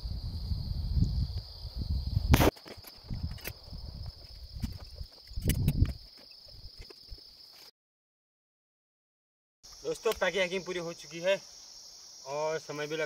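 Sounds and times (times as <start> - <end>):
insects chirring: 0.0 - 7.7, 9.6 - 13.0
sharp click: 2.3 - 3.6, 5.3 - 6.0.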